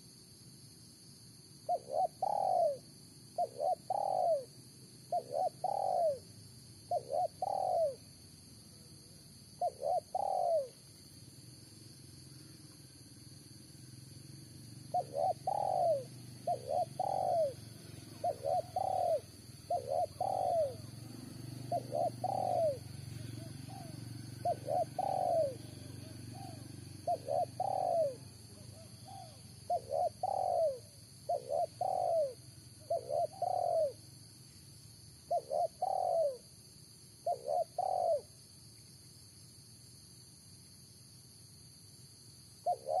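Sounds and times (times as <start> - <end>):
dove cooing: 1.7 - 6.3, 6.9 - 8.0, 9.6 - 10.8, 14.9 - 34.0, 35.3 - 36.4, 37.2 - 38.4, 42.6 - 43.0.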